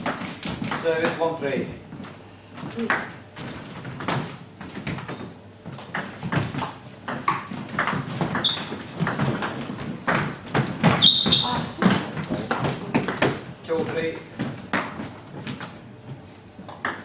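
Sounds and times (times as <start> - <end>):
table tennis ball knocking: 2.8 - 3.2, 5.8 - 13.4, 14.7 - 15.0, 16.7 - 17.0.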